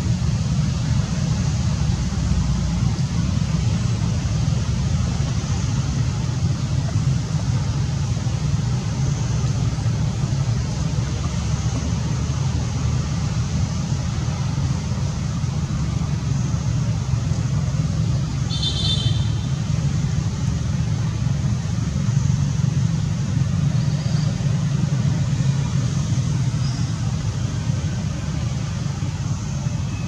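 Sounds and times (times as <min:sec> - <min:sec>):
steady low rumble: 0:00.0 - 0:18.6.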